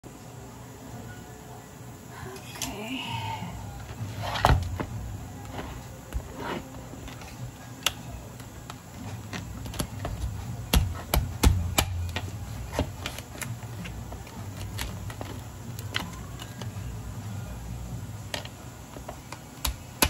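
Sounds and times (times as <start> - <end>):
cleaver chopping crab shell: 10.7 - 12.2.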